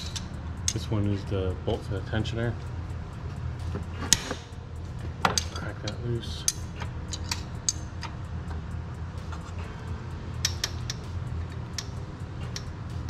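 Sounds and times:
wrench metallic clicks: 0:00.0 - 0:01.2, 0:03.2 - 0:09.7, 0:10.3 - 0:13.0
steady low hum: 0:00.0 - 0:13.0.

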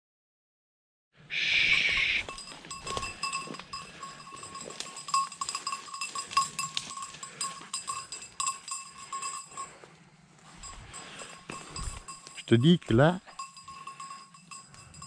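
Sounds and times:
small bell ringing: 0:01.7 - 0:15.0
rustling of twigs and leaves: 0:02.2 - 0:12.4.

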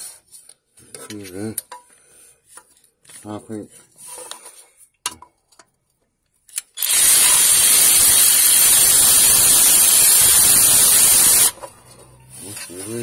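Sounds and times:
impact wrench running: 0:06.8 - 0:11.8.

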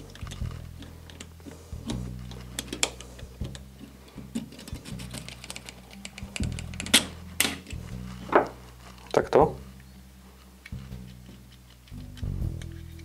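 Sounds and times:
tool tapping metal parts: 0:00.0 - 0:08.5
background music low notes: 0:00.0 - 0:13.0.

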